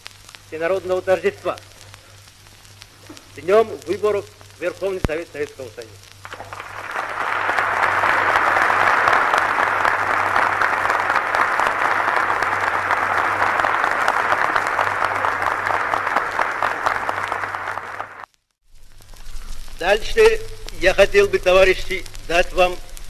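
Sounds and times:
large audience applauding: 6.2s - 18.3s.

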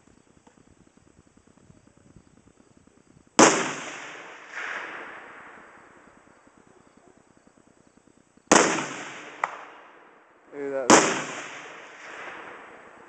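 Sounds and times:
rifle shots echoing: 3.4s - 6.7s, 8.5s - 13.0s.

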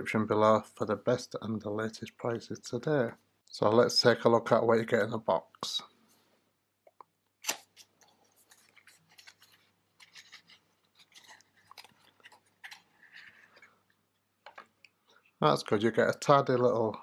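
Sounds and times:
cardboard rustling and scraping: 8.2s - 13.8s.

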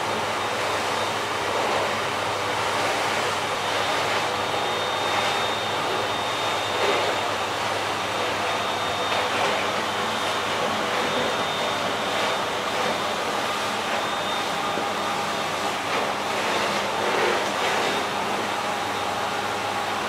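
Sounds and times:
vacuum cleaner running: 0.0s - 20.0s.

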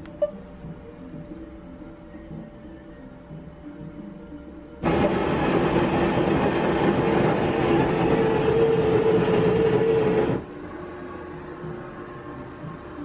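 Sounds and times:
steady hum: 0.0s - 13.0s
vending machine mechanical whirr: 4.8s - 10.7s.

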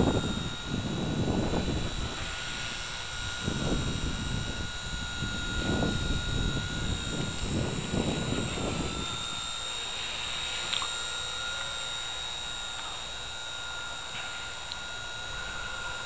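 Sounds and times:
wind rumble on microphone: 0.0s - 9.6s
rc helicopter motor whine: 0.0s - 16.0s.

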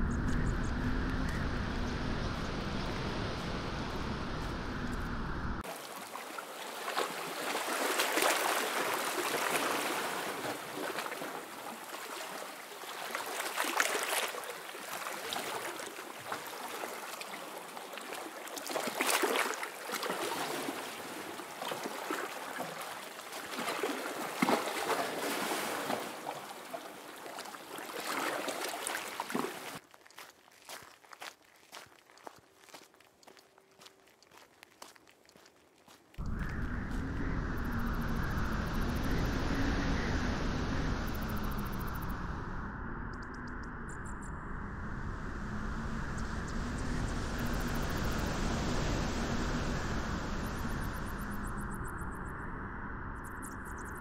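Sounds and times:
low steady sound: 0.0s - 5.7s, 36.2s - 54.0s
waves washing on beach: 5.6s - 29.8s, 45.9s - 51.4s.

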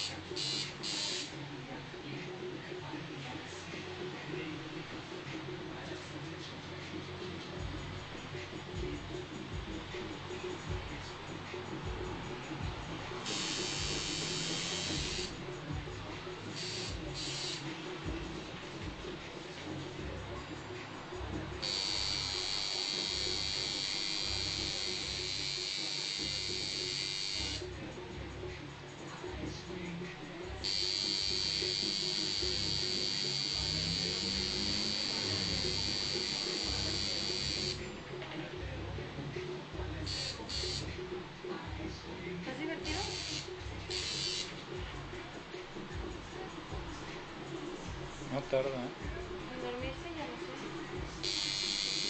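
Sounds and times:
tattoo machine buzzing: 0.0s - 1.3s, 13.2s - 15.4s, 16.5s - 17.7s, 21.6s - 27.7s, 30.6s - 37.9s, 40.0s - 40.9s, 42.8s - 44.6s, 51.2s - 52.0s.

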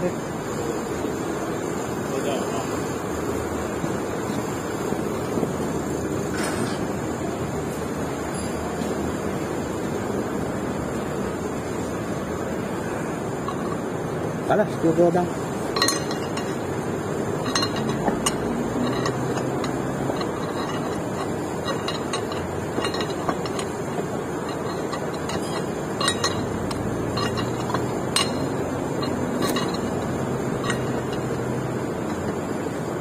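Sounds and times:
metallic clinks of hand tools: 17.3s - 32.4s.

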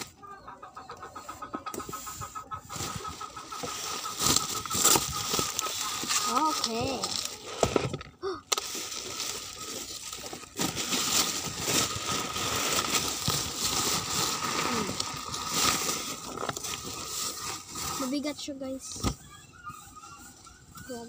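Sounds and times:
bubble wrap rustling and crinkling: 2.7s - 18.8s.

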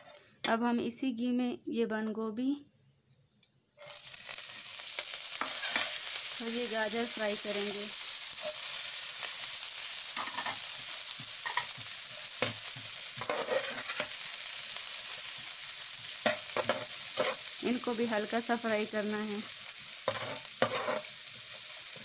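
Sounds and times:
vegetables sizzling in a wok: 3.6s - 22.0s
metal spatula scraping a pan: 5.0s - 6.1s, 8.4s - 8.8s, 10.2s - 10.7s, 11.4s - 14.2s, 16.2s - 17.6s, 20.0s - 21.5s.

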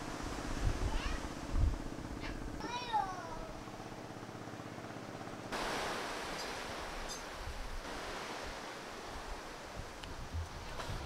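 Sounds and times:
wind buffeting microphone: 0.0s - 2.6s, 6.7s - 11.0s.

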